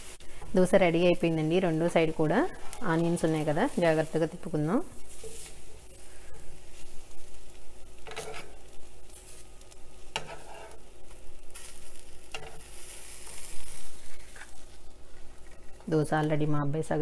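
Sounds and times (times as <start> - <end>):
light sizzle from pan: 0.0 - 17.0
metal spatula scraping pan: 8.0 - 8.8, 10.1 - 10.9.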